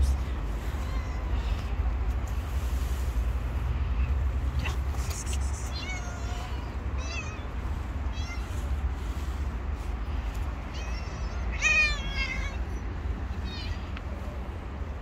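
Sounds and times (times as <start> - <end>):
low steady rumble: 0.0 - 15.0
cat meowing: 0.6 - 1.8, 4.6 - 8.7, 10.6 - 14.0.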